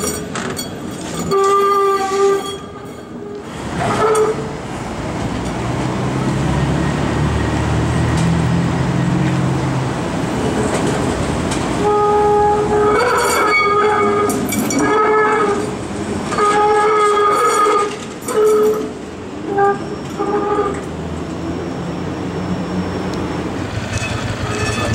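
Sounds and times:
streetcar wheels squealing: 0.0s - 4.6s, 11.7s - 24.9s
streetcar rumbling: 0.0s - 24.9s.

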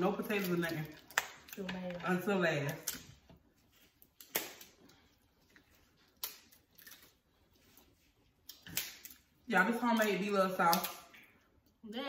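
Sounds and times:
wet eating clicks and smacks: 0.2s - 1.7s, 4.0s - 7.4s, 8.2s - 11.8s.

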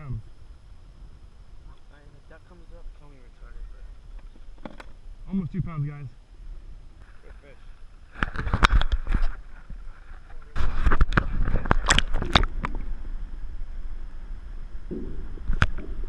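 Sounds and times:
muffled underwater rumble: 6.3s - 16.0s
water splashing: 10.6s - 12.9s.

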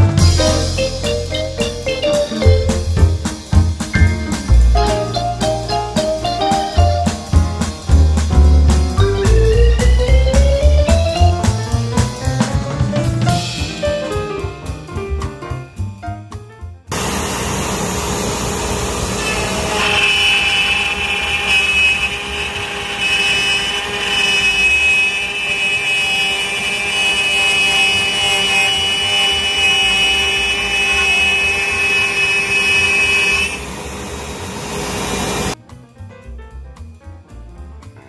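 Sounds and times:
high steady whine: 16.9s - 35.6s
router spindle whirring: 16.9s - 35.6s.

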